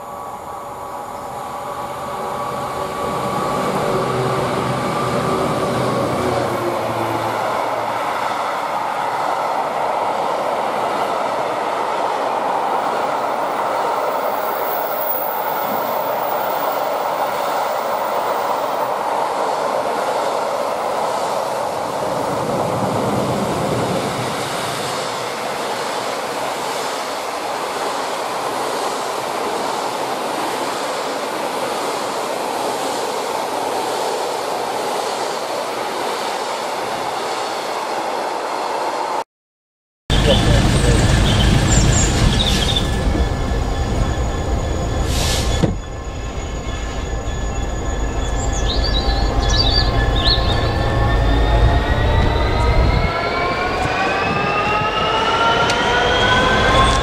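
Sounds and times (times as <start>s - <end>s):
steel wheels rumbling on rail: 0.0s - 38.2s, 40.1s - 57.0s.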